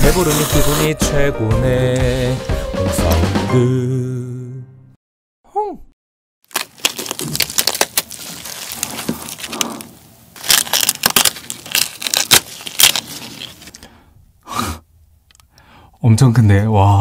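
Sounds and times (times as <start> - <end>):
shrimp shell cracking: 6.5 - 13.8.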